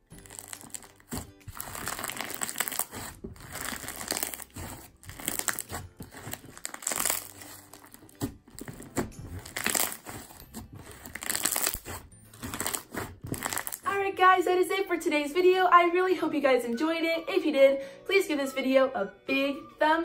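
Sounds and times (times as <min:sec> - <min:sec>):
slime crunching and popping: 0:00.1 - 0:13.9.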